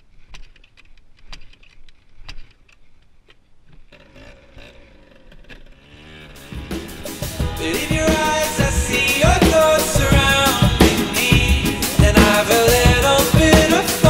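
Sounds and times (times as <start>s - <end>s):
small atv engine running: 3.6s - 12.2s.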